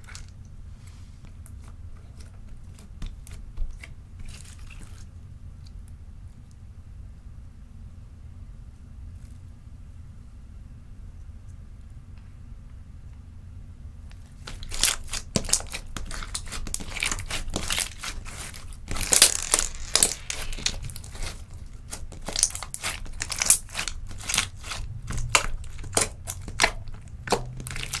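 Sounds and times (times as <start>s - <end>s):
slime crackling and popping: 14.4s - 28.0s.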